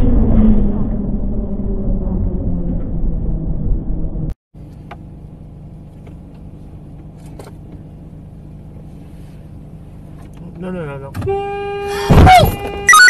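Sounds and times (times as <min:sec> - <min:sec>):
engine and road noise: 0:00.0 - 0:13.0
car idling hum: 0:03.8 - 0:11.2.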